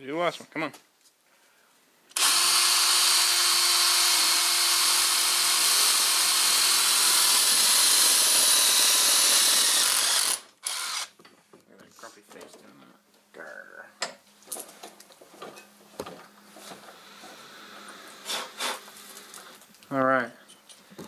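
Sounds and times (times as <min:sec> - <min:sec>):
drill cutting through metal: 0:02.1 - 0:11.2.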